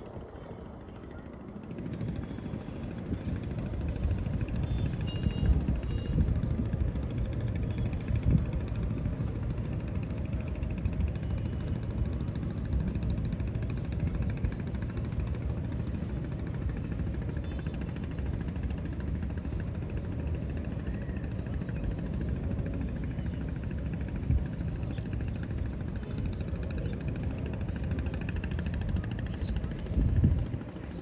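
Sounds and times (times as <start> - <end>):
engine rumble: 0.0 - 31.0.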